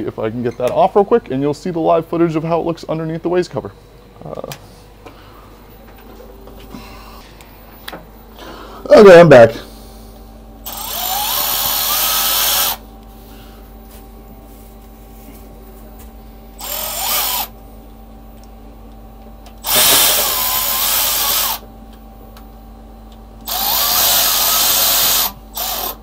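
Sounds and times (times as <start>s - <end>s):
cordless drill whining: 10.6s - 12.8s, 16.6s - 17.5s, 19.6s - 21.6s, 23.4s - 26.0s.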